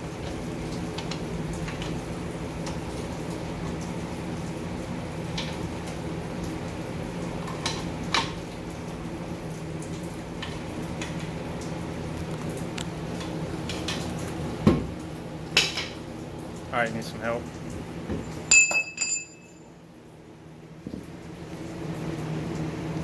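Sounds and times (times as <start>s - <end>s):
low machine hum: 0.0s - 23.0s
metallic clinks of tools: 18.5s - 19.6s.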